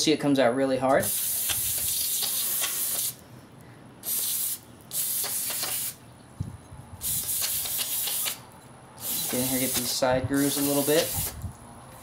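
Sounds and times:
aerosol spray hissing: 0:01.0 - 0:03.2, 0:04.0 - 0:06.0, 0:07.0 - 0:08.4, 0:09.0 - 0:11.4.

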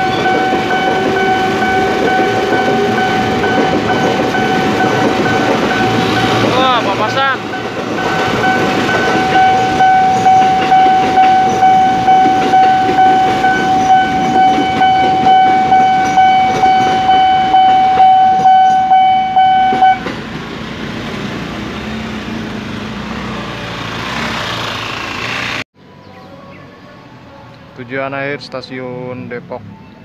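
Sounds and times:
level crossing warning bell: 0:00.0 - 0:20.2
train clattering past: 0:00.0 - 0:25.6.

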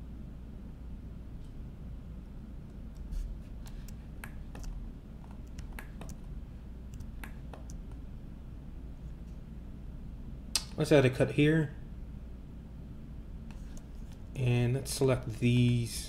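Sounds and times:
steady low hum: 0:00.0 - 0:16.0
computer mouse and keyboard clicks: 0:02.9 - 0:06.3, 0:06.9 - 0:08.0.

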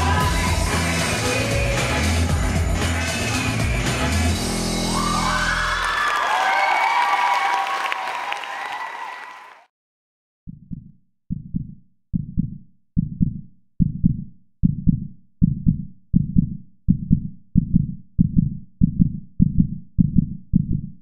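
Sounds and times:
heartbeat thumps: 0:01.6 - 0:02.8, 0:10.5 - 0:21.0.

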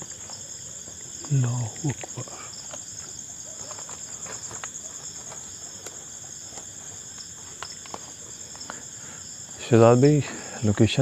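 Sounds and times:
crickets trilling: 0:00.0 - 0:11.0.

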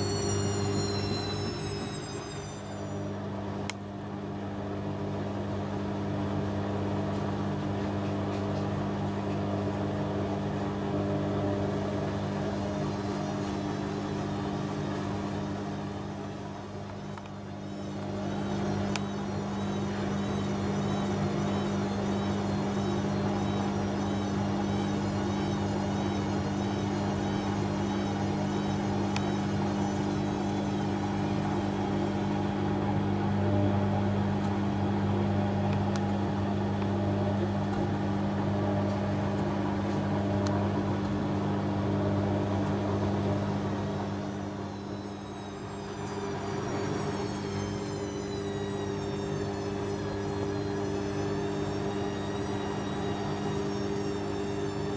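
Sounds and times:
washing machine drum spinning: 0:00.0 - 0:05.0.

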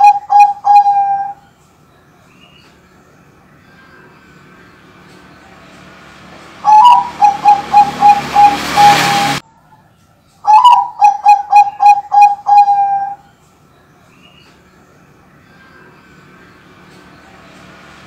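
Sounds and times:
dove cooing: 0:00.0 - 0:01.4, 0:06.6 - 0:09.4, 0:10.4 - 0:13.3.

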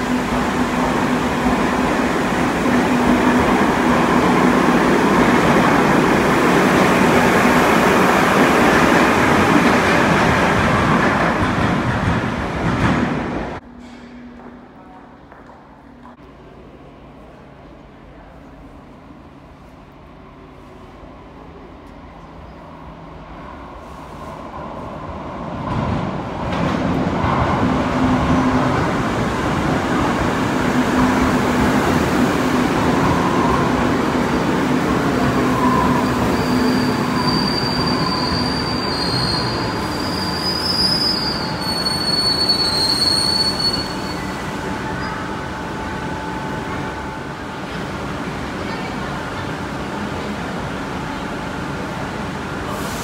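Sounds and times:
high-pitched brake squealing: 0:35.5 - 0:45.3.

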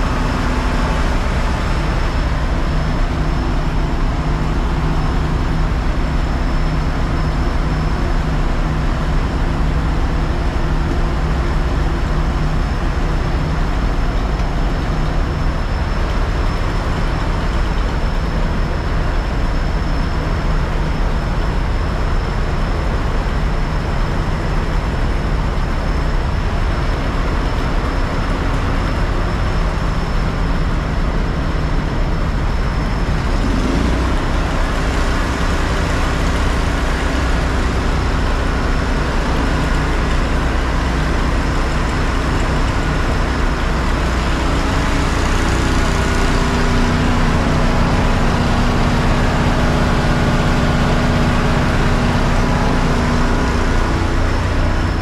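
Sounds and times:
fire truck engine running: 0:00.0 - 0:55.0.

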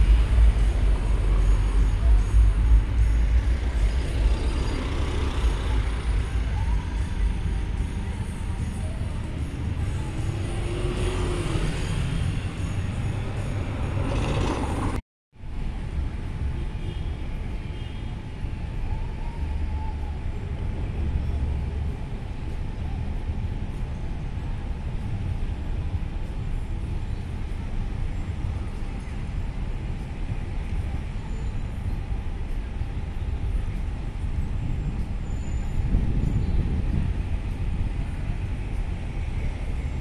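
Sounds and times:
traffic rumble: 0:00.0 - 0:40.0
vehicle passing: 0:09.7 - 0:15.0.

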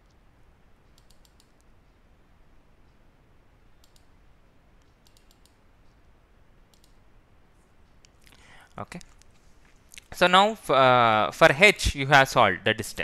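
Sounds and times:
faint sharp clicks: 0:00.8 - 0:01.7, 0:03.8 - 0:04.1, 0:04.8 - 0:06.0, 0:06.7 - 0:07.0.

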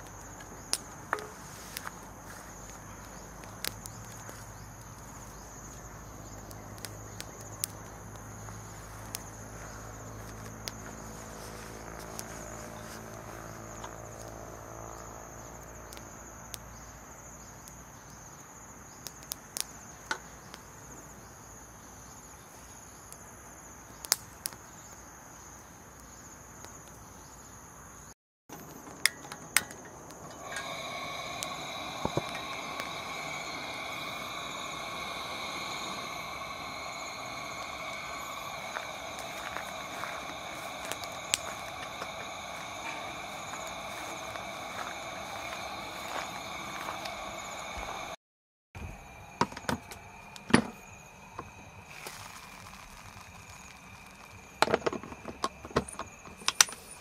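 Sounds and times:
high-pitched insect chorus: 0:00.0 - 0:48.2, 0:48.8 - 0:57.0
low hum: 0:29.8 - 0:48.2.

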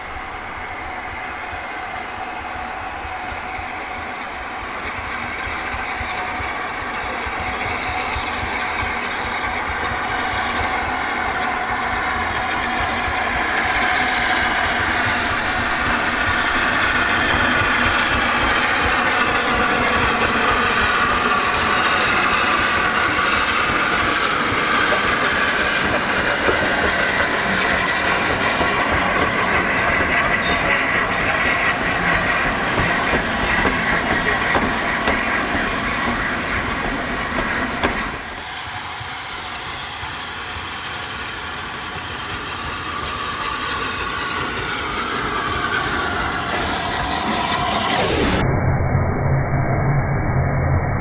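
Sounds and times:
steam hissing: 0:00.0 - 0:48.2
train rumble: 0:00.0 - 0:48.4
wheels clacking over rail joints: 0:14.6 - 0:39.2.

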